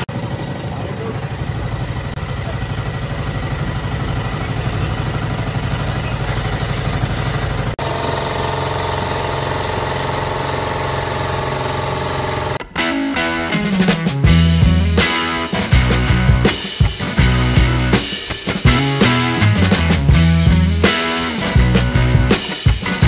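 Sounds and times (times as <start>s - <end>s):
boat engine running: 0.0s - 12.6s.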